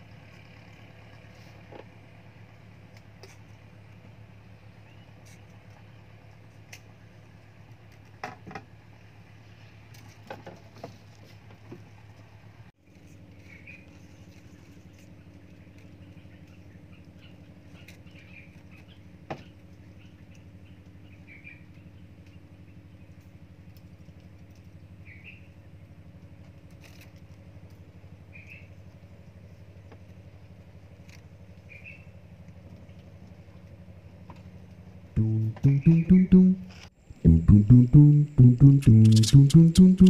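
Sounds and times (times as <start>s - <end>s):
low motor hum: 32.7s - 40.0s
short high chirps: 35.2s - 40.0s.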